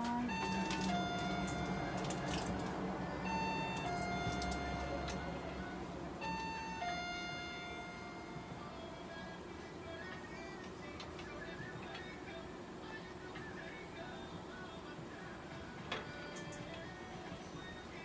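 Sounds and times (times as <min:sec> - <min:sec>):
falling two-note electronic tone: 0:00.0 - 0:02.0, 0:03.0 - 0:08.7
low steady hum: 0:00.0 - 0:18.0.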